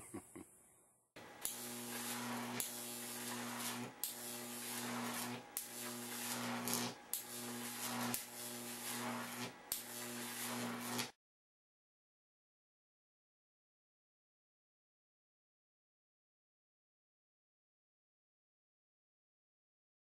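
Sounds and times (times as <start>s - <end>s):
electrical hum with hiss: 1.2s - 11.1s.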